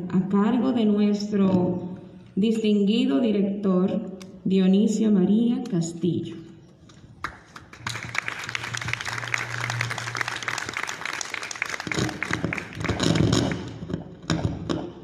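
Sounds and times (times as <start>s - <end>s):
group clapping: 6.9s - 14.0s.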